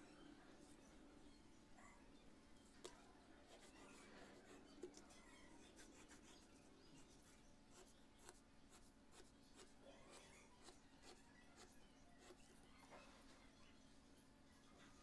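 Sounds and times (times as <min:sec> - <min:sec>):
pen scratching on paper: 0:03.4 - 0:12.5.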